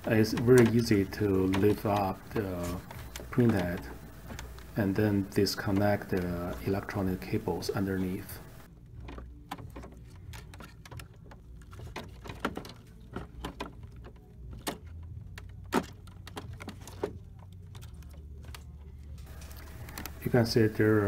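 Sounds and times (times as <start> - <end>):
steady low hum: 0.0 - 10.2, 17.2 - 21.0
plastic clicks and rattles: 0.0 - 20.8.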